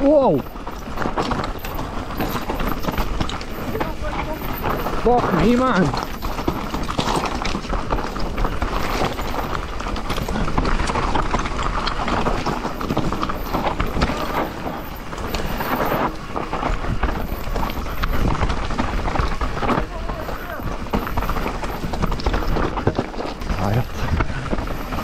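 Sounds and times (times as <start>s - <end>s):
bike clattering and rattling: 0.0s - 25.0s
tyres crunching over dirt and stones: 0.0s - 25.0s.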